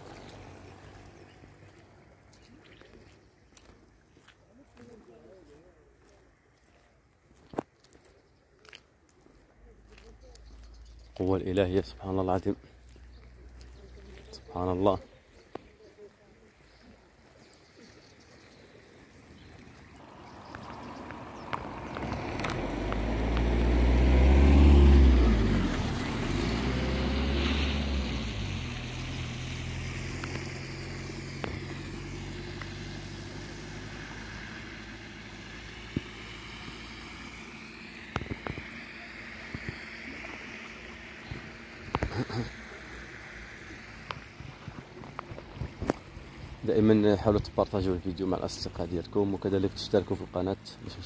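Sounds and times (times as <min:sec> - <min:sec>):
vehicle engine passing by: 0:00.0 - 0:03.7, 0:17.7 - 0:51.0.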